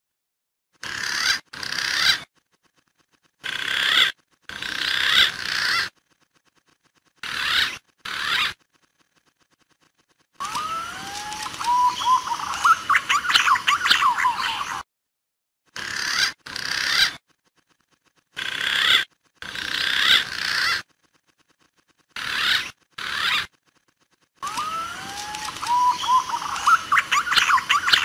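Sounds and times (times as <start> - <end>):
pigeon calls whistling: 10.4 - 14.8, 24.4 - 28.0.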